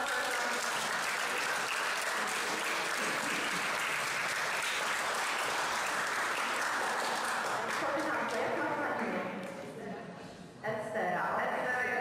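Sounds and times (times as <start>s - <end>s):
audience applause: 0.0s - 8.9s.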